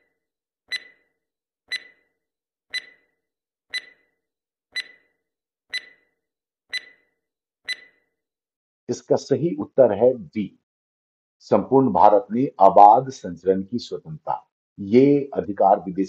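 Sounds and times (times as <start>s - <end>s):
timer ticking: 0.7s - 1.1s, 1.7s - 2.1s, 2.7s - 3.1s, 3.7s - 4.1s, 4.8s - 5.1s, 5.7s - 6.1s, 6.7s - 7.1s, 7.7s - 8.0s.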